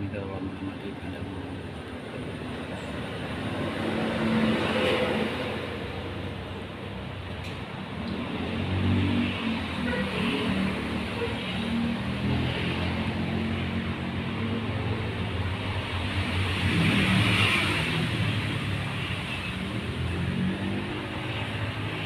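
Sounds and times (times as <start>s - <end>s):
motor vehicle engine hum: 0.0s - 10.0s.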